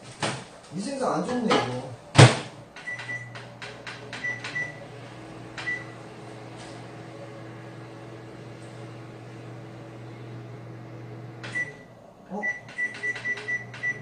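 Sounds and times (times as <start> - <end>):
microwave humming: 0.0 - 14.0
microwave keypad beeps: 2.8 - 3.4, 4.2 - 4.8, 5.6 - 5.9, 11.5 - 11.8, 12.4 - 14.0.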